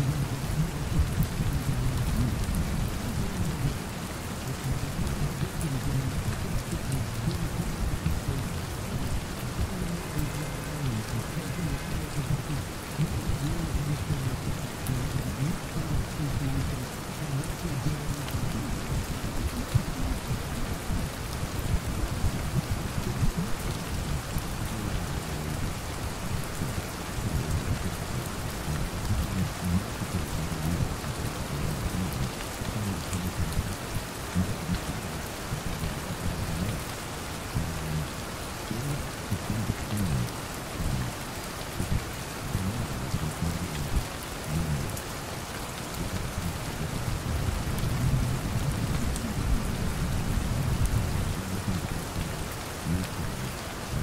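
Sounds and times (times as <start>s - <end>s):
rain pattering: 0.0s - 54.0s.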